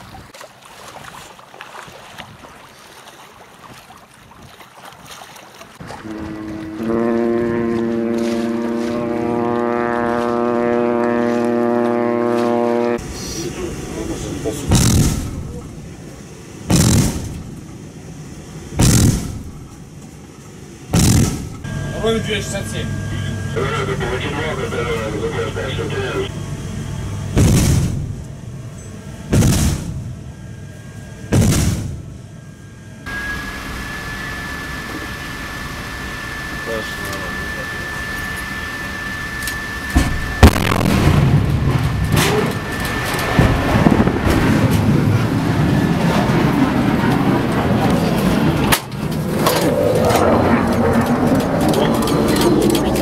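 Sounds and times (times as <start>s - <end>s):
ship's horn blast: 5.8s - 13.4s, 21.6s - 27.3s, 33.0s - 46.0s
steady noise: 12.8s - 46.0s
naval gun booming: 14.6s - 15.6s, 16.6s - 17.6s, 18.7s - 19.7s, 20.9s - 21.6s, 27.3s - 28.2s, 29.3s - 30.2s, 31.3s - 32.2s, 40.0s - 45.6s
thin high steady tone: 32.4s - 40.0s.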